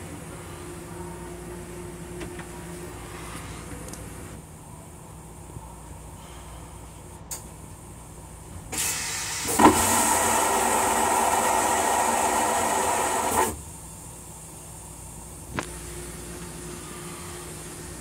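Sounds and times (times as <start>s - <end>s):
toilet flush rushing: 8.8s - 13.5s.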